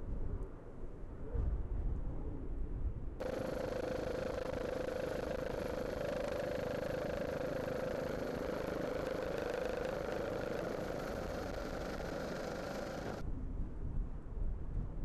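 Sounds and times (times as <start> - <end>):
powerboat engines high drone: 3.2 - 13.2.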